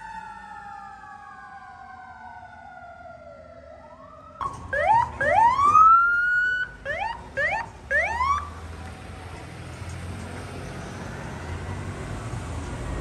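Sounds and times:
ambulance siren whooping: 0:00.0 - 0:08.6
traffic noise: 0:00.0 - 0:13.0
low vehicle engine: 0:04.3 - 0:13.0.

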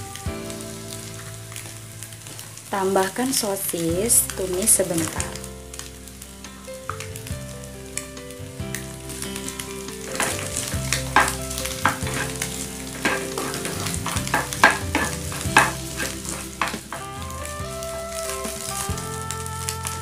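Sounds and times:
sausage and egg sizzling in a pan: 0:00.0 - 0:20.0
plastic spatula scraping a pan: 0:10.0 - 0:20.0.

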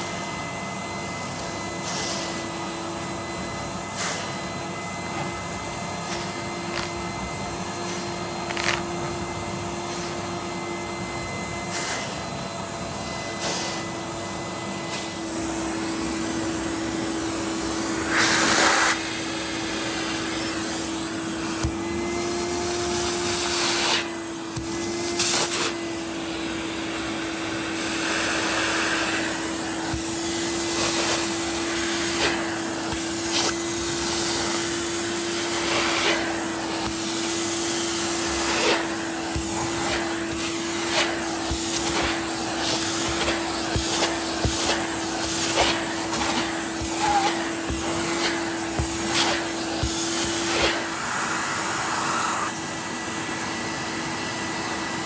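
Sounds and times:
vacuum cleaner motor whine: 0:00.0 - 0:55.0
suction air rushing: 0:15.0 - 0:22.2, 0:35.2 - 0:53.0.

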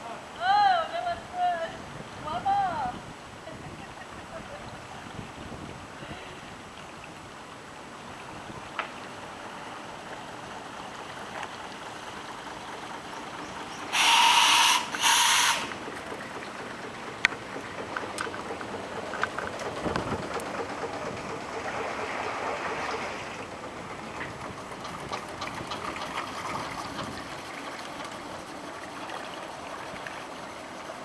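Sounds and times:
steam whistle blasts: 0:13.9 - 0:15.8.

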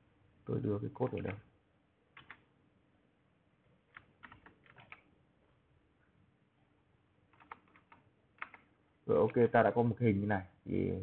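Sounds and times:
faint keyboard keystrokes: 0:02.2 - 0:02.4, 0:03.9 - 0:05.1, 0:07.3 - 0:09.5.

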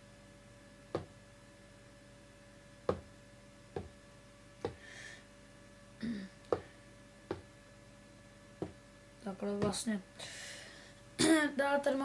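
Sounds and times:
fingers tapping controller pads: 0:00.9 - 0:01.1, 0:02.9 - 0:03.1, 0:07.3 - 0:07.5.

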